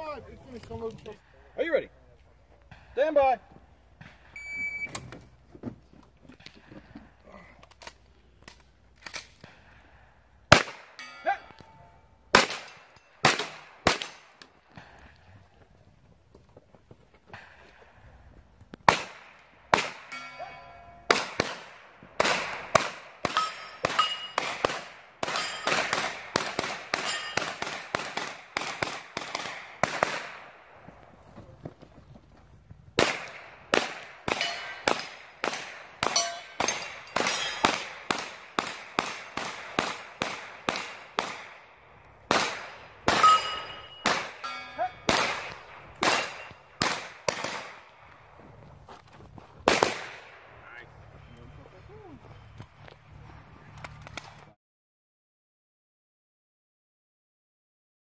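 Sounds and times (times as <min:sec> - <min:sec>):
carbine gunshots: 0:10.5 - 0:11.2, 0:12.3 - 0:14.4, 0:18.8 - 0:20.5, 0:21.1 - 0:30.7, 0:33.0 - 0:48.1, 0:49.7 - 0:50.6
steel targets clanging: 0:10.9 - 0:12.0, 0:20.0 - 0:21.1, 0:23.3 - 0:24.6, 0:25.2 - 0:26.0, 0:26.9 - 0:27.6, 0:34.3 - 0:35.2, 0:36.0 - 0:38.1, 0:42.7 - 0:46.7.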